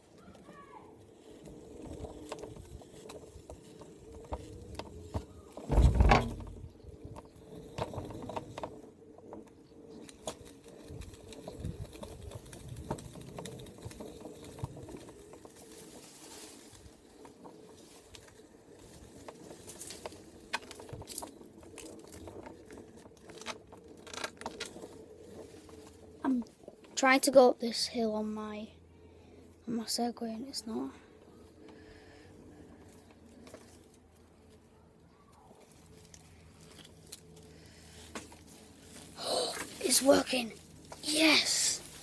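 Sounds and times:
hoverboard wheels rattling: 0.0s - 42.0s
loud thump: 5.7s - 6.6s.

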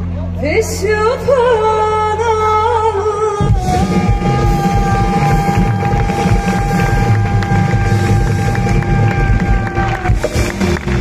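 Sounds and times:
singer with wide vibrato: 0.4s - 9.0s
drums and full band: 3.4s - 11.0s.

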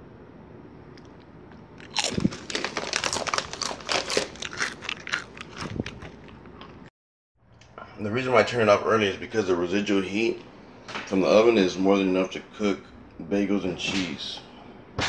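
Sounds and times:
chewing crunchy chip: 1.0s - 6.9s.

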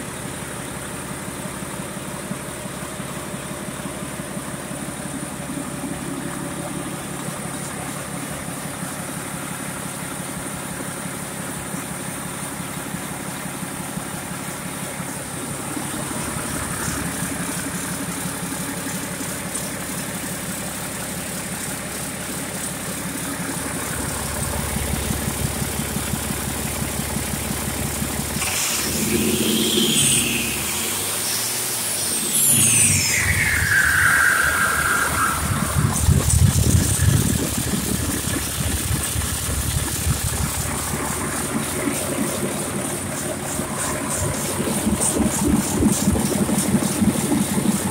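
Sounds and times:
diesel engine running: 0.0s - 47.9s
high whine falling in pitch: 15.1s - 19.2s, 23.2s - 47.9s.

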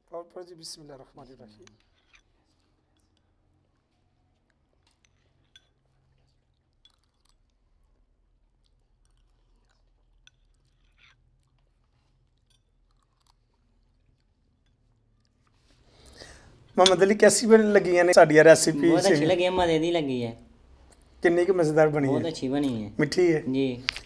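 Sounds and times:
soft chewing: 0.7s - 16.9s, 20.4s - 21.3s.

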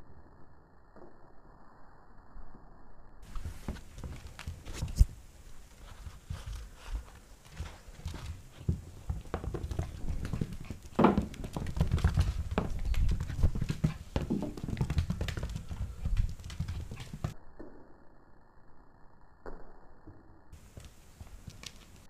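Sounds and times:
puppy claws clicking on wood floor: 6.4s - 17.3s, 20.8s - 22.0s.

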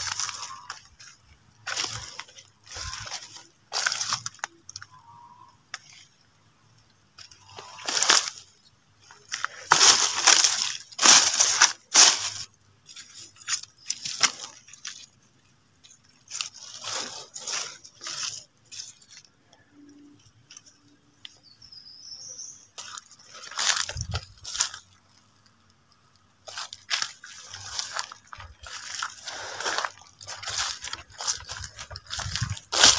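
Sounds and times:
footsteps crunching dry leaves: 0.0s - 5.2s, 7.2s - 19.3s, 22.4s - 32.9s.

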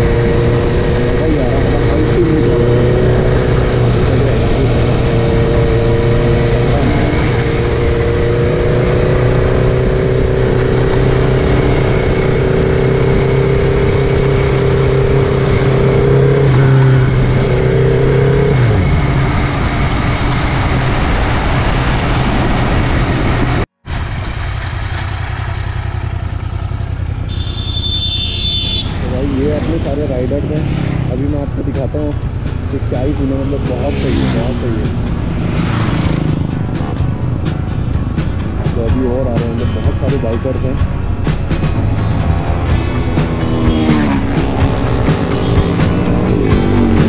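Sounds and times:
wind rush: 0.0s - 25.0s
roadside traffic: 0.0s - 47.0s
motorbike engine running: 23.9s - 47.0s.

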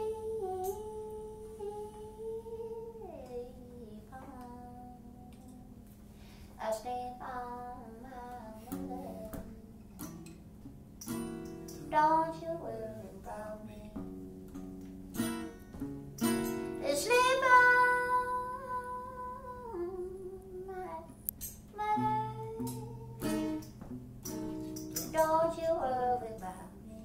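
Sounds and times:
live gospel guitar music: 14.0s - 18.2s.

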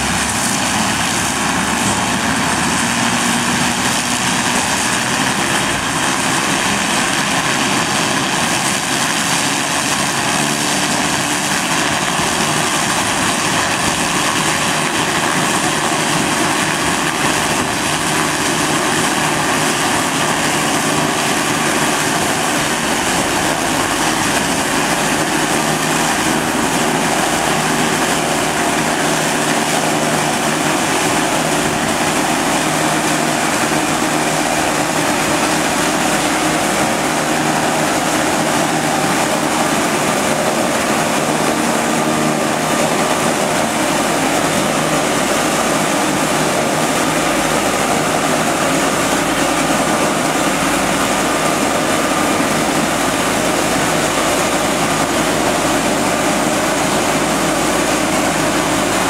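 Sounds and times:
harvester engine running: 0.0s - 59.0s.

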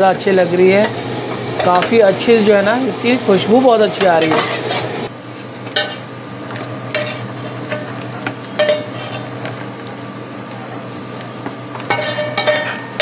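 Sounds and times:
steady low hum: 0.0s - 13.0s
metal ladle scraping a wok: 4.0s - 6.1s, 6.9s - 7.8s, 8.6s - 9.4s, 11.9s - 13.0s.

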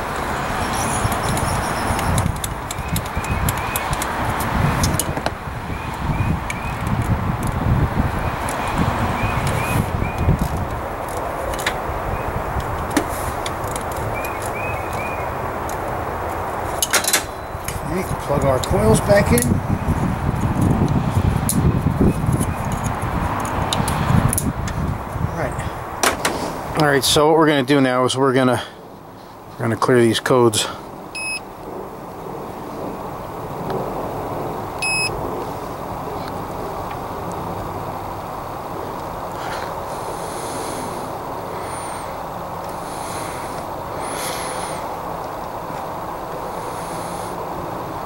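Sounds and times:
wind rumble on microphone: 0.0s - 27.3s, 30.8s - 48.0s
short electronic beeps: 31.2s - 31.4s, 34.8s - 35.1s.

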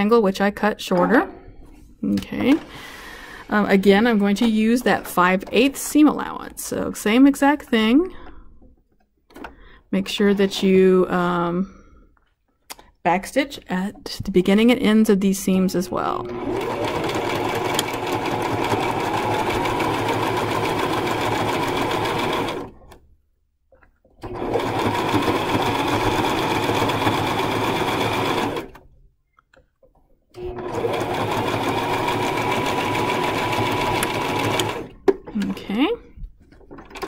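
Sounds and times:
sewing machine stitching: 16.1s - 23.0s, 24.2s - 28.8s, 30.4s - 35.0s.

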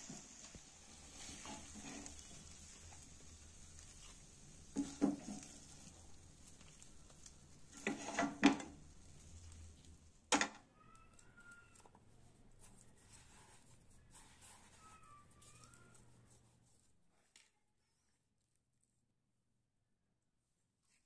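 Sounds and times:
spatula scraping frying pan: 0.0s - 9.7s
faint frying hiss: 0.0s - 17.4s.

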